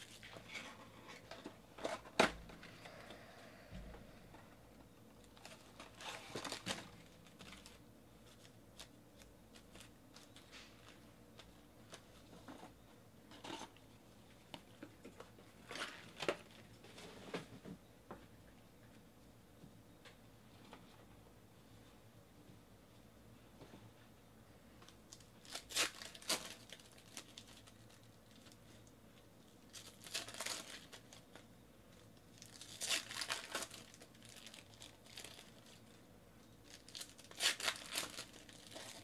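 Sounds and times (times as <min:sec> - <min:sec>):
cardboard box and packs rustling: 0:05.2 - 0:08.9.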